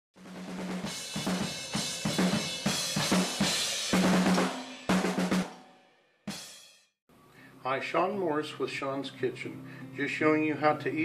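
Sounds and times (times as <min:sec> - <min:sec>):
snare and bass drum hits: 0:00.2 - 0:05.6.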